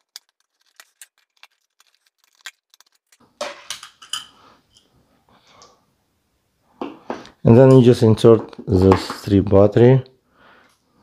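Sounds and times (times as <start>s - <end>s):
plastic cover and screws clattering: 0.0s - 4.2s.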